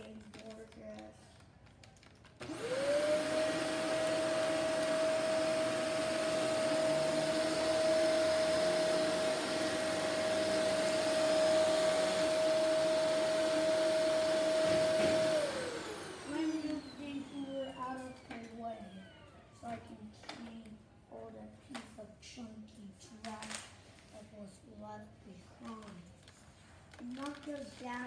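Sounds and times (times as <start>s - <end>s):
vacuum cleaner running: 2.4s - 19.8s.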